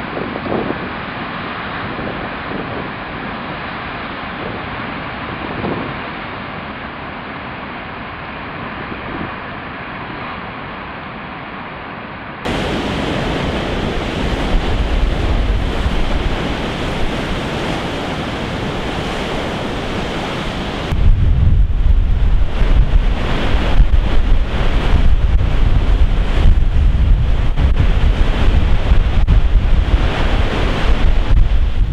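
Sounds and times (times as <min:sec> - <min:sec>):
wind buffeting microphone: 0:00.0 - 0:06.7, 0:12.4 - 0:31.9
surf crashing on rocks: 0:12.5 - 0:31.9.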